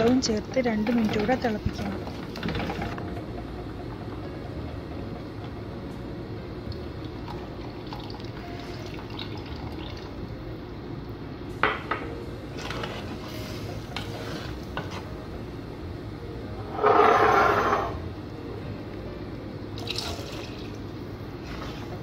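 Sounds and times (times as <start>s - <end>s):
liquid pouring: 6.7s - 10.3s, 19.8s - 20.9s
spoon scraping in clay pot: 16.7s - 18.0s.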